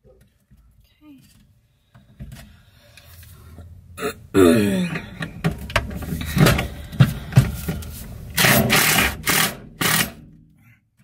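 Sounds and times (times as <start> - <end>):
knocks and clicks of handling: 4.9 - 8.0
cordless drill driving screws: 8.4 - 10.2.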